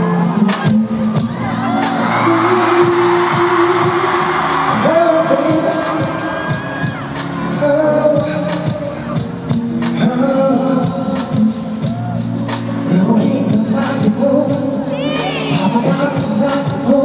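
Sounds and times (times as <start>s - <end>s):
audience screaming and cheering: 0.0s - 17.0s
band with a steady beat: 0.0s - 17.0s
man singing into a microphone: 4.7s - 6.8s, 7.4s - 17.0s.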